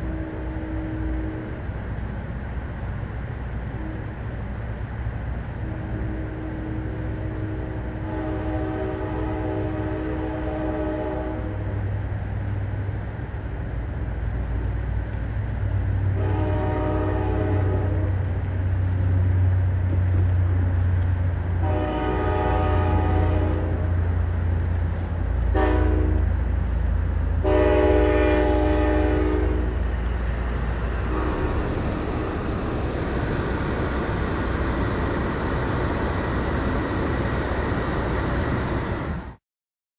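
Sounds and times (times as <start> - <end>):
train horn blasts: 0.0 - 1.6, 3.8 - 4.1, 5.6 - 11.8, 16.1 - 18.3, 21.6 - 24.2, 25.4 - 26.4, 27.4 - 29.9, 31.0 - 32.8
low rumble of moving train: 0.0 - 39.4.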